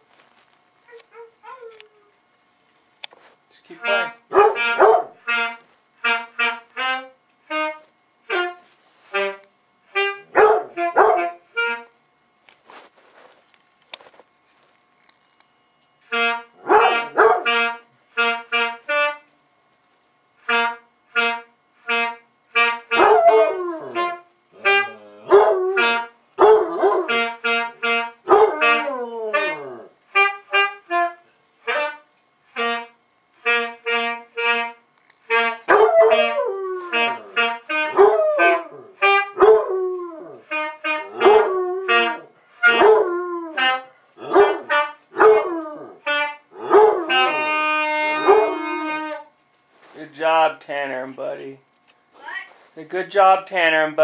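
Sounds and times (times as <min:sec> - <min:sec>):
saxophone playing short notes: 0:03.2 - 0:12.0, 0:16.0 - 0:19.4, 0:20.4 - 0:53.3
dog howling: 0:23.0 - 0:27.1, 0:35.7 - 0:40.4, 0:41.1 - 0:43.6, 0:44.2 - 0:49.2.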